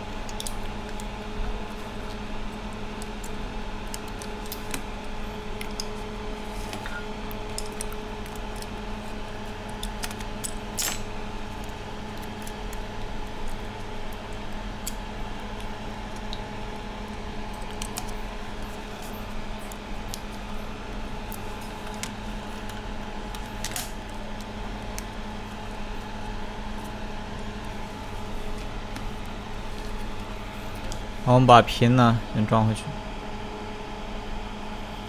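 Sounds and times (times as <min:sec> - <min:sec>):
steady hum: 0:00.0 - 0:35.0.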